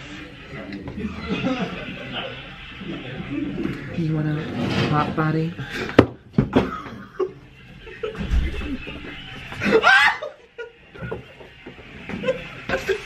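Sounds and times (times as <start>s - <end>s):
high squealing laughter: 9.6s - 10.7s.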